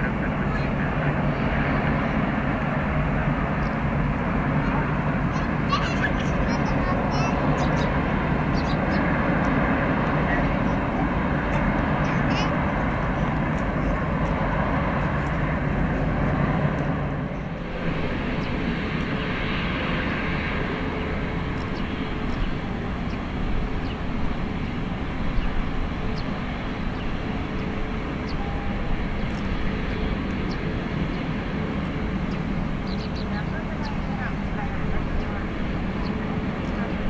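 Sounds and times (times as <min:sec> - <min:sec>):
jet engines taxiing: 0:00.0 - 0:37.0.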